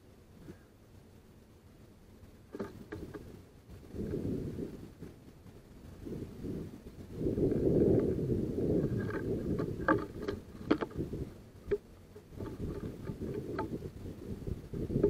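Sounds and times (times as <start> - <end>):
wind rumbling on microphone: 2.4 - 15.0
birds pecking on wooden tray: 2.5 - 4.3, 7.0 - 14.0.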